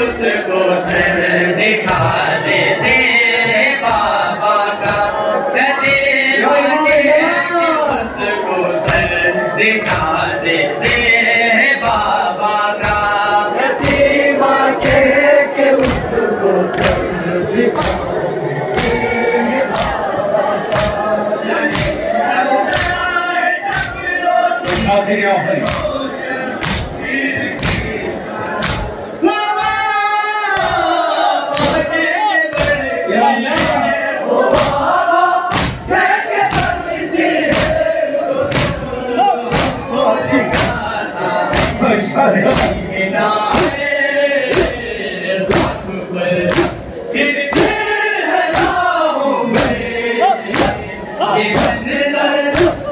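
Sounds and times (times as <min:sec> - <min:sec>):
men chanting a lament: 0:00.0 - 0:52.9
hands beating on chests: 0:08.8 - 0:09.2, 0:11.8 - 0:13.2, 0:13.8 - 0:14.2, 0:15.8 - 0:17.1, 0:21.7 - 0:23.1, 0:23.7 - 0:25.0, 0:25.6 - 0:26.0, 0:26.6 - 0:28.0, 0:31.5 - 0:32.9, 0:33.5 - 0:34.8, 0:35.5 - 0:37.8, 0:38.4 - 0:38.9, 0:39.5 - 0:40.9, 0:41.5 - 0:41.8, 0:42.4 - 0:42.9, 0:43.5 - 0:43.8, 0:44.5 - 0:44.9, 0:45.5 - 0:45.8, 0:48.5 - 0:48.9, 0:49.5 - 0:52.9
chest-beating thumps: 0:39.5 - 0:40.9, 0:49.5 - 0:52.9.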